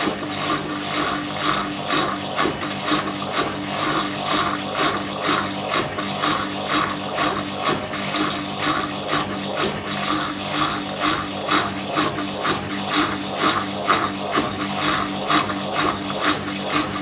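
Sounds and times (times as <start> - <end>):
washer motor hum: 0.0 - 17.0.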